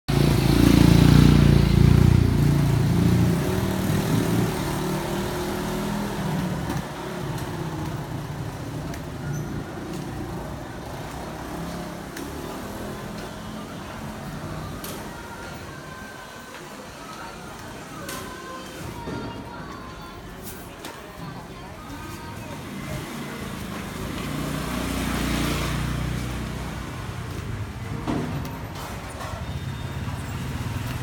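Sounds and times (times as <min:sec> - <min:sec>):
motor scooter passing: 0:00.1 - 0:14.6, 0:22.6 - 0:31.0
market background noise: 0:00.1 - 0:31.0.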